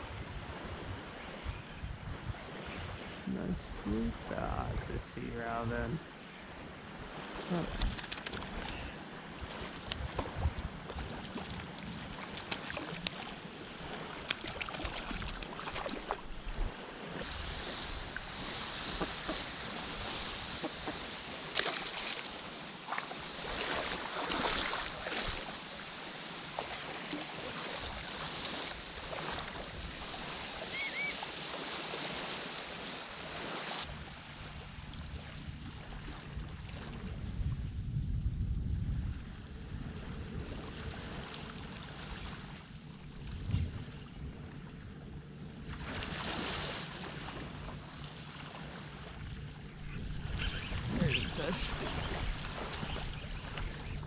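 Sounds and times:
wind on microphone: 0.0s - 6.0s, 6.9s - 20.6s, 33.9s - 44.6s, 49.2s - 54.0s
water lapping and splashing: 0.0s - 37.8s, 38.9s - 54.0s.

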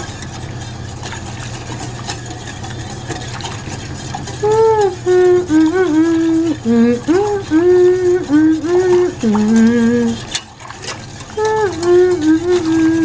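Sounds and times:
whisk ticking against pan: 0.0s - 13.0s
person humming a tune: 4.4s - 10.2s, 11.4s - 13.0s.

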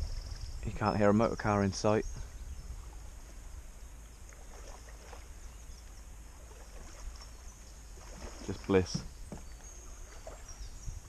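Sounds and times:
steady low rumble: 0.0s - 4.5s
faint birdsong: 0.0s - 11.0s.

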